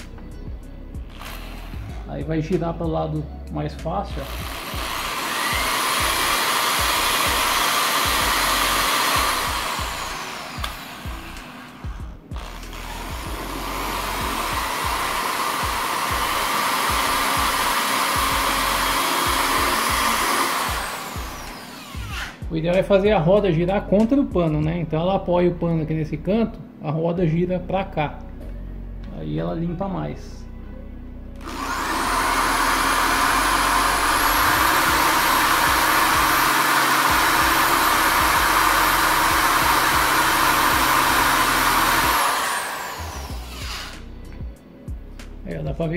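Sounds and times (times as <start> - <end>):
hand drill whirring: 1.0 - 2.1, 4.1 - 22.5, 31.4 - 44.1.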